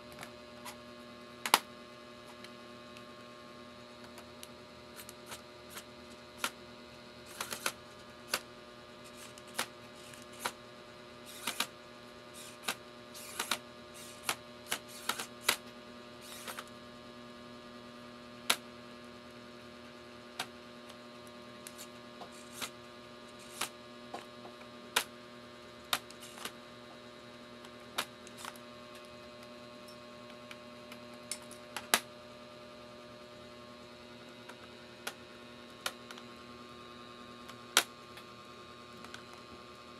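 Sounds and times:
steady electrical hum: 0.0 - 39.9.

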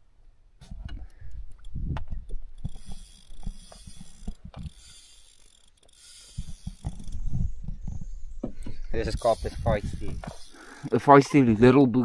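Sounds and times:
fishing reel ratcheting clicks: 2.6 - 7.5, 8.9 - 11.5.

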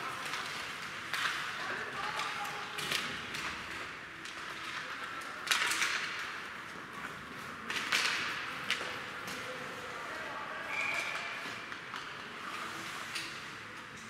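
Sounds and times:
hockey sticks and puck clacking: 0.0 - 9.9.

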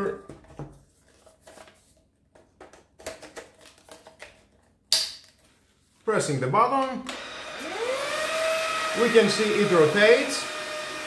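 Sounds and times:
plastic parts clicking and knocking: 2.3 - 5.4.

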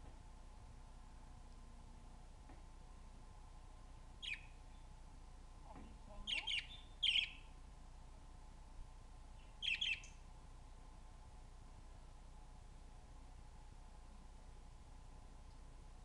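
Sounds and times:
budgerigar chirping: 4.2 - 4.6, 6.2 - 7.5, 9.6 - 10.1.

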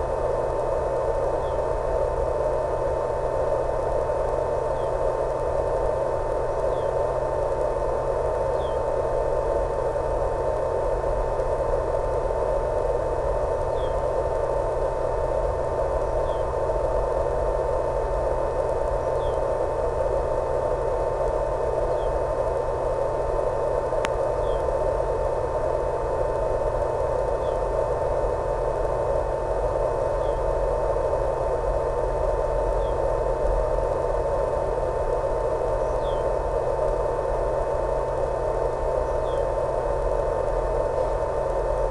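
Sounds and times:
constant mid-pitched tone: 0.0 - 41.9
low hum: 0.0 - 41.9
static hiss: 0.0 - 41.9.

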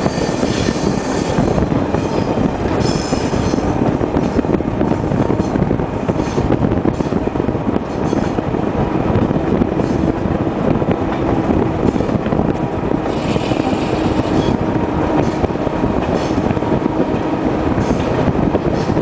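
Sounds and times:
train wheels rumbling on rail: 0.0 - 19.0
high wheel squeals: 13.1 - 14.6.

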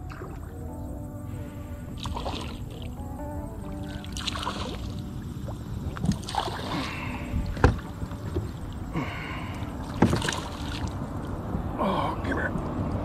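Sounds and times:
fish thrashing and splashing: 5.5 - 11.4.

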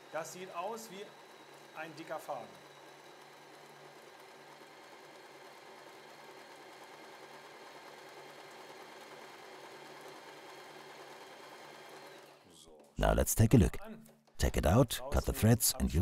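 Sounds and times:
sewing machine running: 0.0 - 12.5.

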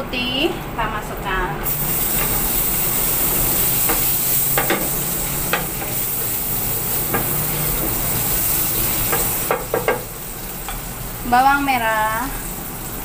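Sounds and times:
food sizzling in hot oil: 1.6 - 13.0
spatula knocking against pan: 9.1 - 10.1.

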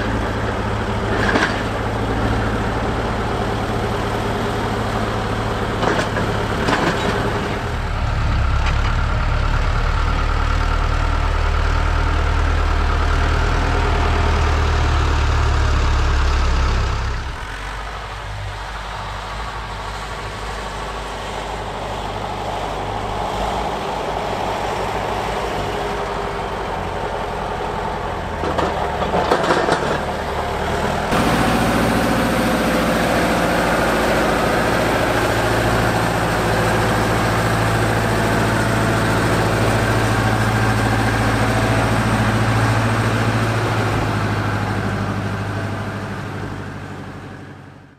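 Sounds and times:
tractor diesel engine running: 0.0 - 47.9
clatter: 1.0 - 1.9, 5.7 - 7.6, 28.4 - 30.2.

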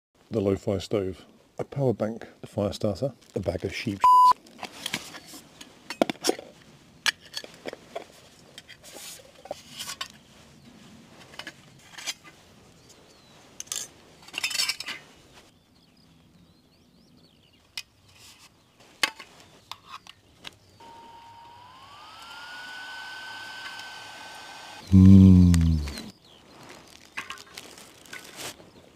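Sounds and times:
small electric fan whining: 20.8 - 25.6.

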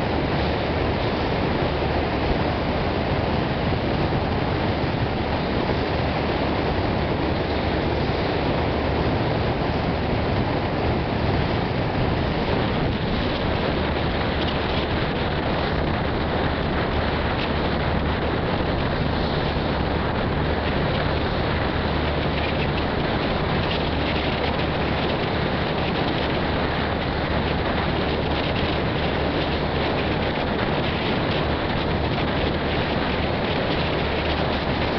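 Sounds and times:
low engine drone: 0.0 - 34.9
wind and water rushing: 0.0 - 34.9.

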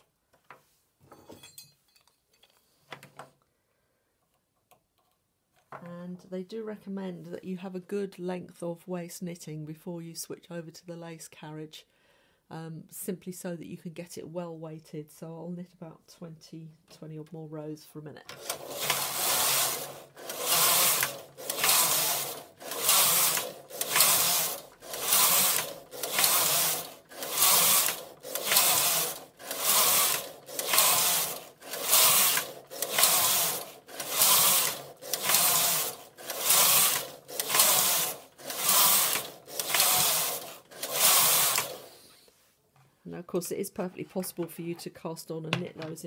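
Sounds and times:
knitting machine carriage swishing: 18.4 - 42.0.

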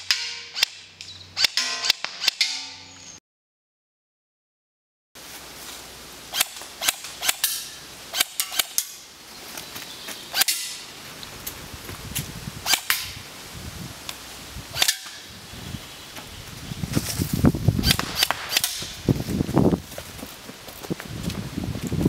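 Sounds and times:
airsoft gun shots: 17.8 - 19.0.

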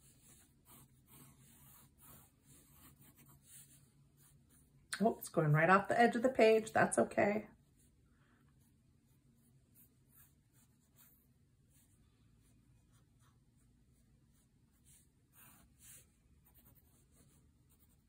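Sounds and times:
marker scratching on paper: 0.0 - 4.8, 8.6 - 11.9, 12.8 - 18.0.

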